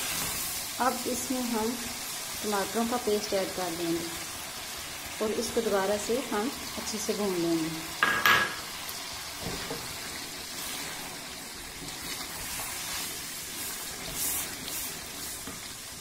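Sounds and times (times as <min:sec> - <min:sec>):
chicken sizzling in oil: 0:00.0 - 0:16.0
spatula scraping pan: 0:10.5 - 0:15.7.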